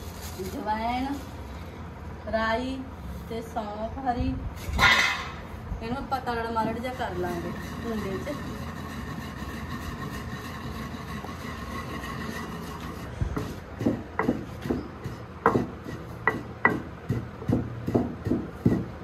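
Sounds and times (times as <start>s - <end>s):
low background hum: 0.0s - 19.0s
wooden pestle pounding in mortar: 6.6s - 19.0s.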